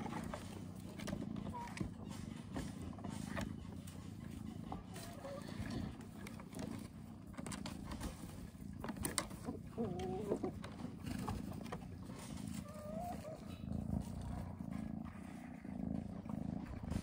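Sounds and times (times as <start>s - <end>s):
low rumbling and rustling: 10.5s - 17.0s
wavering animal calls: 12.5s - 14.4s.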